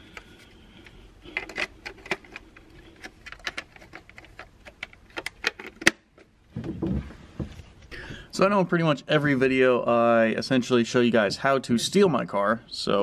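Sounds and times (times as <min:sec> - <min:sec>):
rustling bump: 0:06.5 - 0:07.8.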